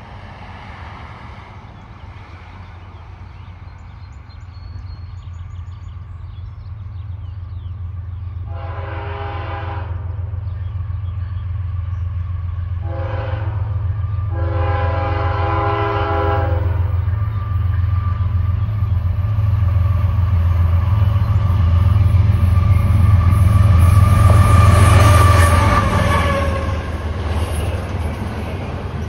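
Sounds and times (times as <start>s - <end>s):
low locomotive engine drone: 0.0s - 29.0s
locomotive air horn blasts: 8.5s - 10.2s, 12.8s - 18.3s, 22.6s - 27.1s.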